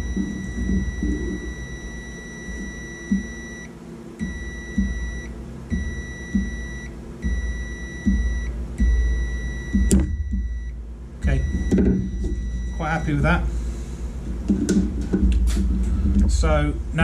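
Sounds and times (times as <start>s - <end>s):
multimeter continuity beep: 0.0s - 13.4s.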